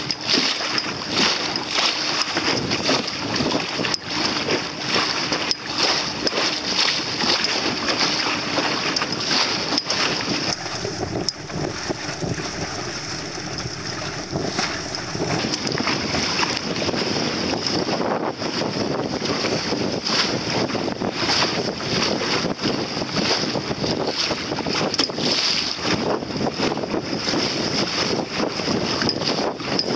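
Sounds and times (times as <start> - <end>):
water splashing along hull: 0.0 - 29.9
wind on microphone: 10.1 - 29.9.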